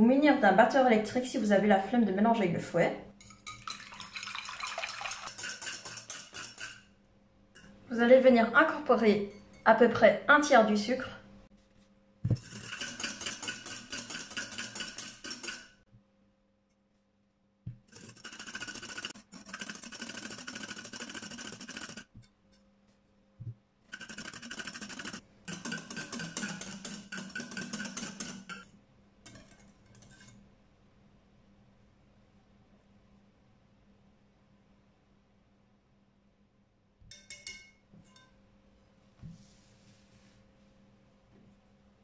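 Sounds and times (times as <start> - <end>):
whisk clattering in glass bowl: 3.2 - 6.9, 12.4 - 15.8, 17.9 - 22.1, 23.9 - 28.6.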